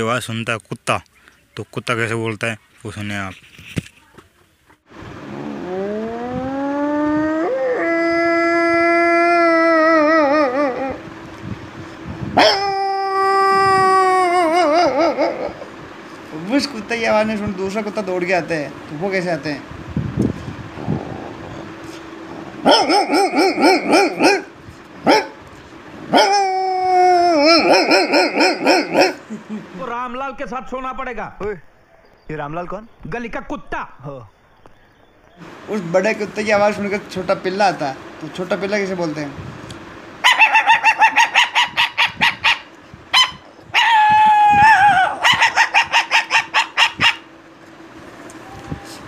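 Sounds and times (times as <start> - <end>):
man imitating puppy whine: 5.2 - 11.1, 12.4 - 15.7, 26.1 - 29.2, 43.8 - 46.4, 48.4 - 49.0
man imitating dog barks: 12.4 - 15.6, 22.6 - 24.5, 26.1 - 29.2, 43.2 - 47.2.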